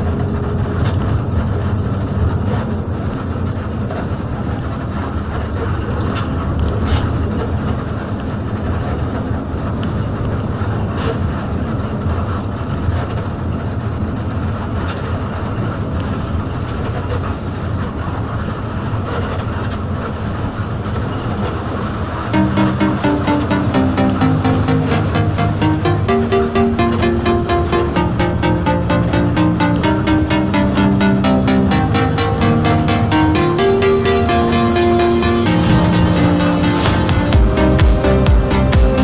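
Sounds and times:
music: 0:22.4 - 0:39.0.

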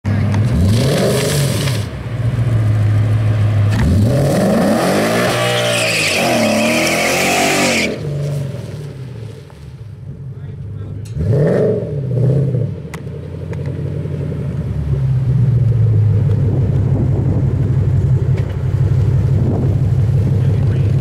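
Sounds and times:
car engine revving: 0:00.1 - 0:21.0
tyres spinning and squealing: 0:03.8 - 0:08.5.

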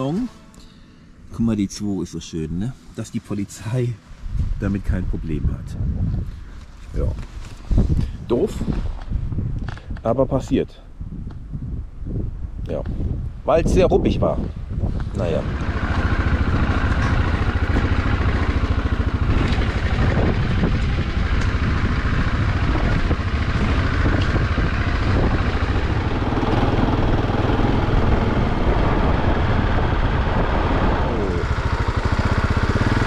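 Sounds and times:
motorcycle engine running: 0:15.1 - 0:33.0.

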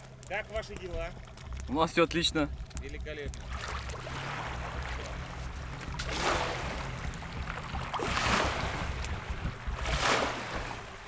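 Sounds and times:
small outboard motor running: 0:00.0 - 0:11.0
wake washing on sandy bank: 0:02.7 - 0:11.0.

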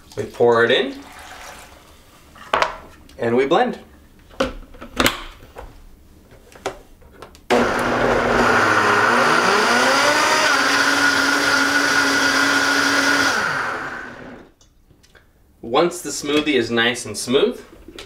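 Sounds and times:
blender motor running: 0:07.5 - 0:14.5.

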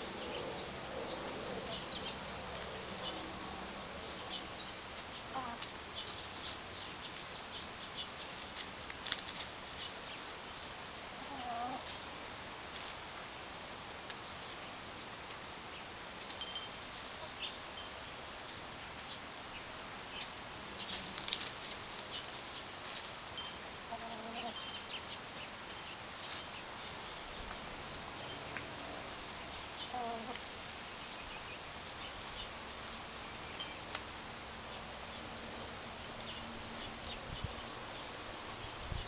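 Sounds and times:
chickens clucking: 0:00.0 - 0:07.3, 0:11.1 - 0:12.9, 0:20.2 - 0:30.5
chickens pecking and scratching: 0:00.0 - 0:37.5.

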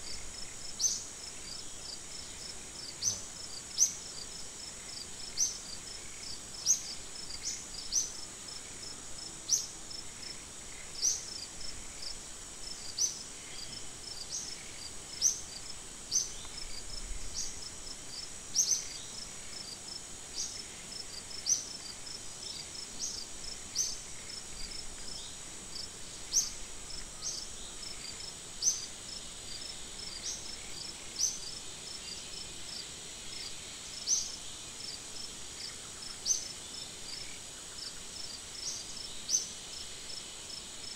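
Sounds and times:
insect drone: 0:00.0 - 0:40.9
sharp high insect chirps: 0:00.1 - 0:04.2, 0:14.2 - 0:17.6, 0:18.5 - 0:19.8, 0:26.3 - 0:32.4.

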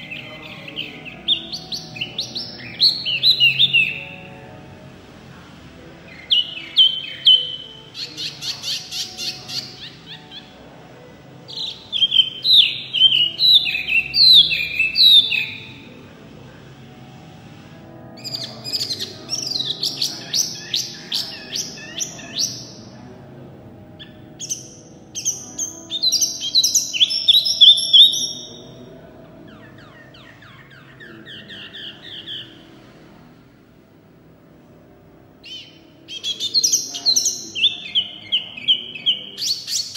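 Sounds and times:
songbird singing: 0:00.0 - 0:17.2, 0:17.8 - 0:33.2, 0:35.4 - 0:39.9.

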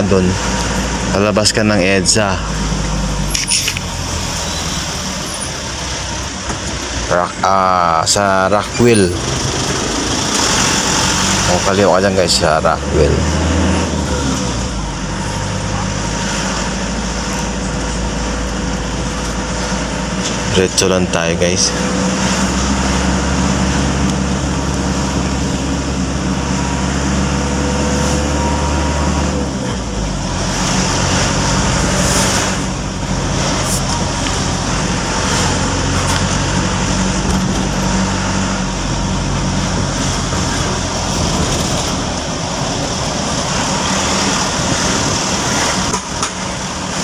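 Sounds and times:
road noise: 0:00.0 - 0:47.0
surrounding traffic: 0:00.0 - 0:47.0
vehicle engine humming: 0:00.0 - 0:47.0.

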